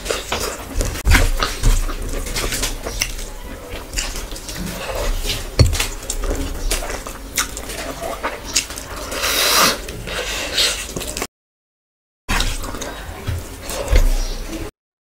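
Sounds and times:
fingers mixing food on steel plate: 1.4 - 8.8
chewing and mouth clicks: 2.2 - 9.2
knock: 5.6 - 5.9.

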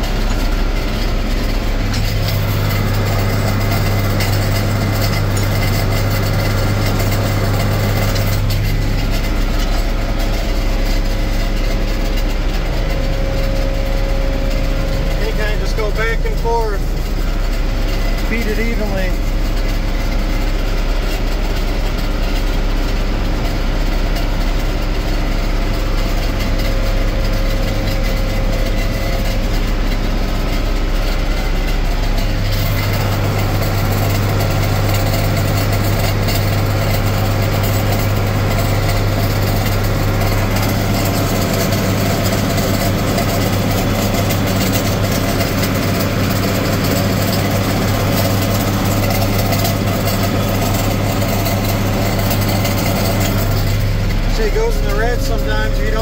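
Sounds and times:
tractor diesel engine drone: 0.0 - 56.0
round baler picking up hay: 27.4 - 56.0.

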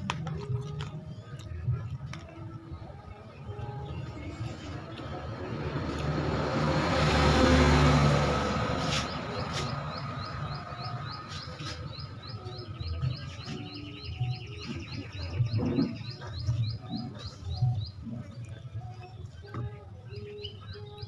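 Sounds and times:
vehicle passing: 4.3 - 12.4
bird chirping rapidly: 8.8 - 18.0.

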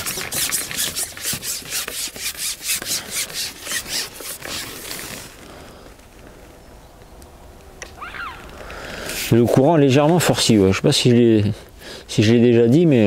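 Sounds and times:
quick rubbing strokes: 0.0 - 5.5, 9.0 - 9.4.

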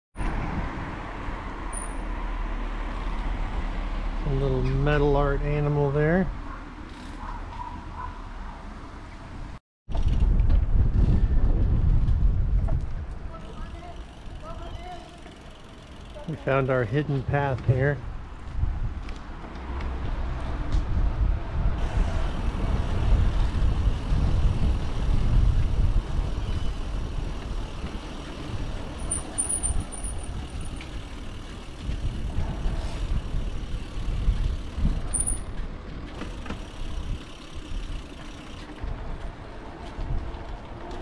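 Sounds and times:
wind buffeting microphone: 9.4 - 13.6, 18.0 - 38.1, 38.8 - 41.0.

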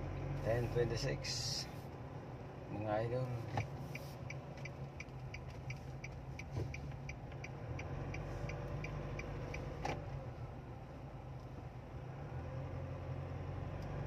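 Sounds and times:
turn signal ticking: 0.0 - 11.9
car cabin hum: 0.0 - 12.1.

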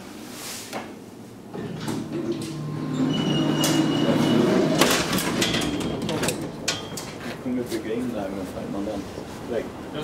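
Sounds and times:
elevator doors rumbling and whirring: 1.4 - 8.4.

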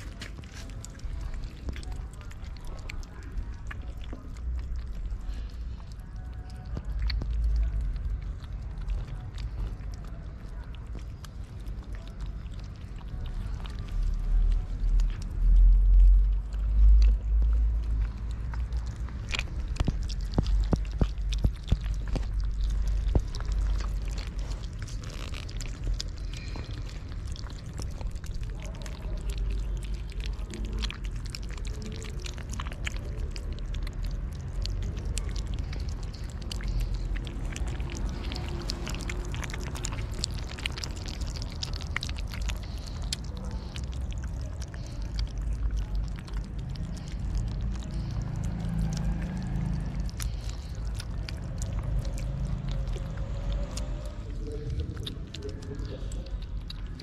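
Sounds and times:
kittens chewing wet food: 0.0 - 57.0
steady low rumble: 0.0 - 57.0.

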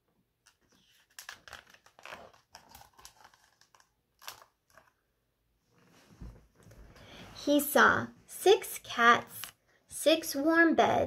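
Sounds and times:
paper page rustling and crinkling: 0.5 - 5.0.

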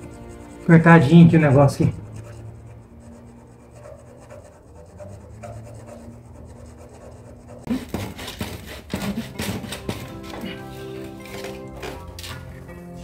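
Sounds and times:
hacksaw sawing through pipe: 0.0 - 12.0.

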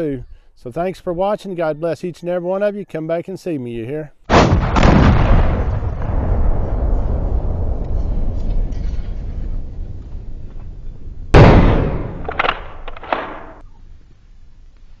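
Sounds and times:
sharp cracks: 4.3 - 6.2, 11.3 - 13.6
loud bang: 4.3 - 9.6, 11.3 - 13.6
low rumble: 5.1 - 13.0.

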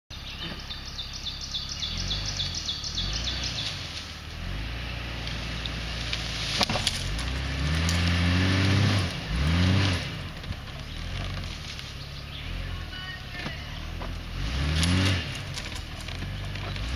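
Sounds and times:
birds chirping: 0.1 - 16.9
car engine revving under load: 0.1 - 16.9
sharp crack: 5.2 - 12.0, 13.4 - 16.9.

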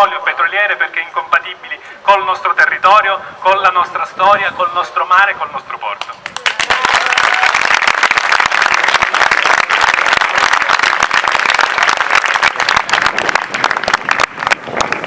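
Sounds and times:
crowd applauding: 6.2 - 15.0.

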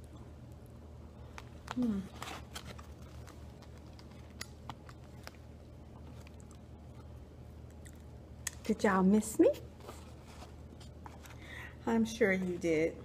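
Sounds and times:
quiet chewing: 0.0 - 8.6
steady low hum: 0.0 - 13.0.

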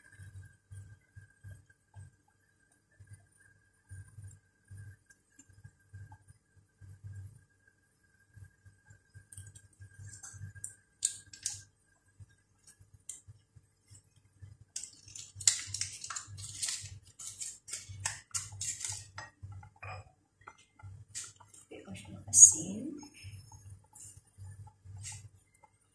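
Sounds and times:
dishes and utensils clattering: 14.8 - 20.6.

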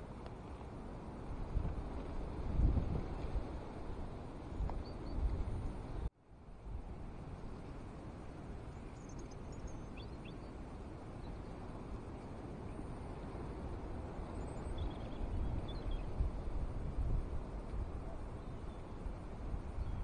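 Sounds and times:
wind buffeting microphone: 0.0 - 20.0
faint high bird chirps: 8.7 - 10.6, 14.3 - 16.2.

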